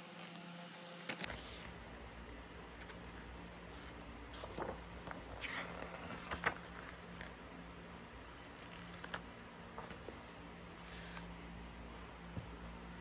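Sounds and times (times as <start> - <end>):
book pages rustling: 3.8 - 7.4, 8.4 - 11.4.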